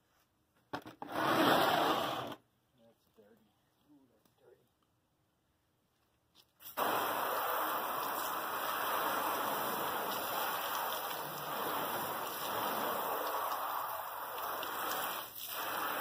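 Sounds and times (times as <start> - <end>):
water spraying on sheet metal: 6.6 - 16.0.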